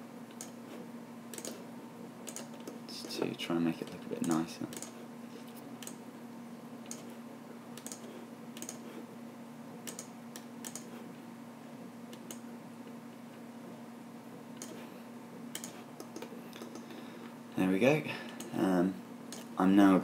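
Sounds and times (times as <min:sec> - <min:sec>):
steady low hum: 0:00.0 - 0:20.0
mouse and keyboard clicks: 0:07.8 - 0:08.8, 0:09.9 - 0:10.9, 0:15.6 - 0:16.9.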